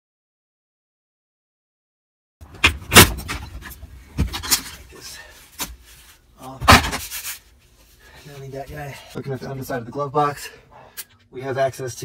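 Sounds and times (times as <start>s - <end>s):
rubbing and scraping: 2.6s - 9.2s.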